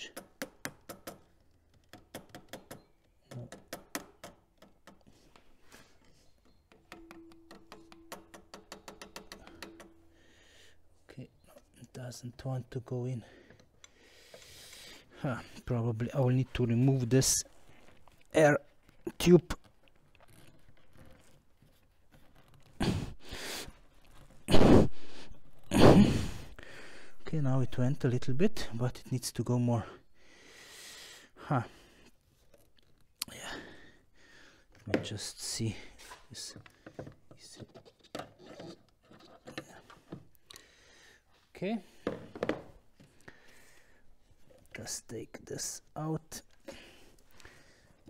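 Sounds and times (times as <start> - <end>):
hammer tapping plastic funnel: 6.5 - 10.2.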